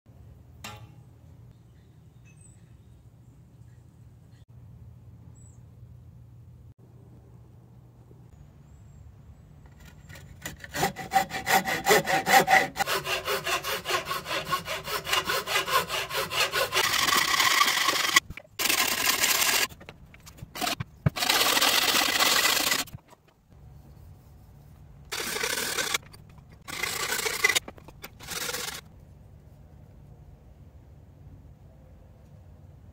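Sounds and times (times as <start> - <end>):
hand saw cutting wood: 9.7 - 23.2, 25.1 - 28.8.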